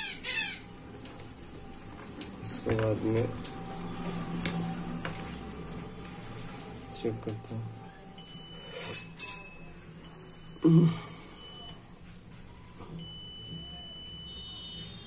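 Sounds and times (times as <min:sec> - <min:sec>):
multimeter long high beeps: 0:08.1 - 0:11.9, 0:13.0 - 0:15.0.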